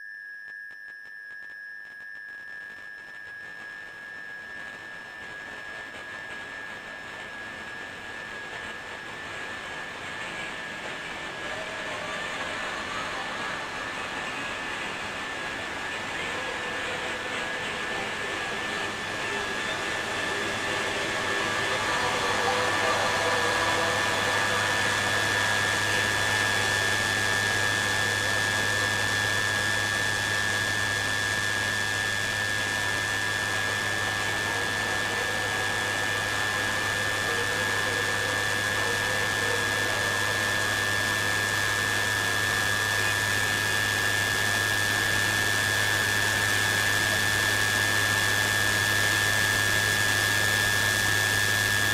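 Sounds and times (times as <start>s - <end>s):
high whine: 0.0s - 51.9s
loud steady rushing drone: 16.6s - 29.2s.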